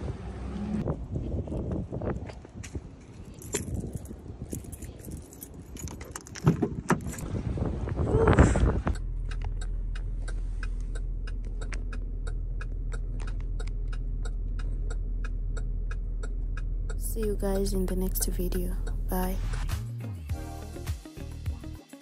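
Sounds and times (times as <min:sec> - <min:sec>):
car engine humming: 0:00.0 - 0:01.0, 0:07.1 - 0:19.8
turn signal ticking: 0:08.8 - 0:19.2.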